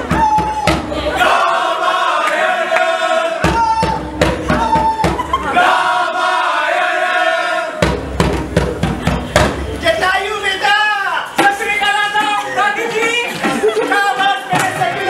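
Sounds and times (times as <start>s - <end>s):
hand drum beating: 0.0s - 1.0s, 3.4s - 5.4s, 7.8s - 9.9s.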